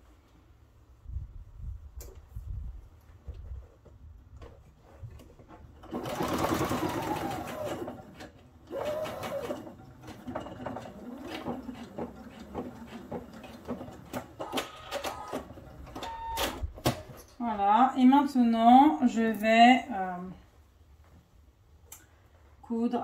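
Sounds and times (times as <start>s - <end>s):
sewing machine stitching: 5.8s - 16.6s.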